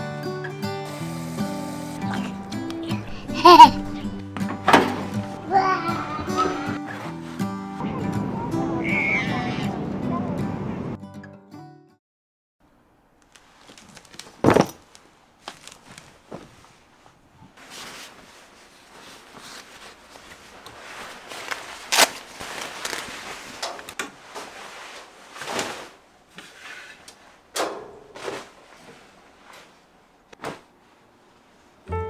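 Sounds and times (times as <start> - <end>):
fabric swishing and rustling: 13.4 - 27.4, 28.1 - 31.8.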